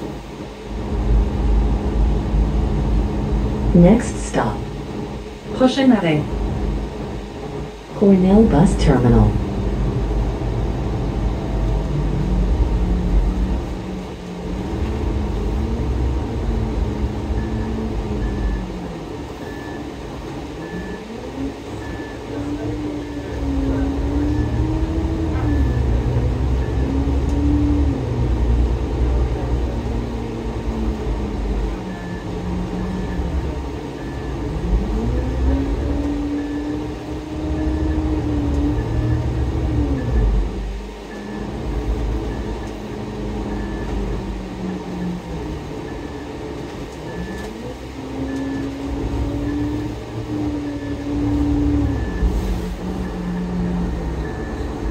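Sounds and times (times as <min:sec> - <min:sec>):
bus diesel engine whine: 0:00.0 - 0:54.9
faint beep: 0:31.7 - 0:33.4, 0:48.2 - 0:53.6.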